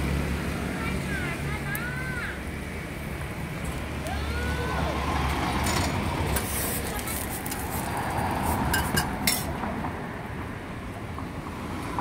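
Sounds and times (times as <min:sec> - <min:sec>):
street noise: 0:00.0 - 0:12.0
metal spatula scraping griddle: 0:05.7 - 0:09.5.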